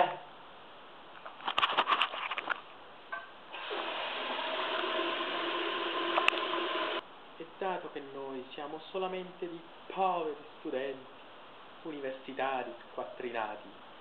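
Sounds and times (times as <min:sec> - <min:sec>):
pitched whine in pipes: 0:03.1 - 0:07.0
toilet flush water rushing: 0:03.5 - 0:07.0.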